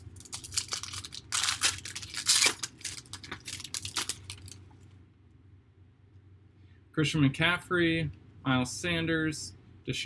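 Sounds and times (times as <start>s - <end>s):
foil wrapper tearing: 0.0s - 4.6s
wrapper rustling: 0.0s - 4.7s.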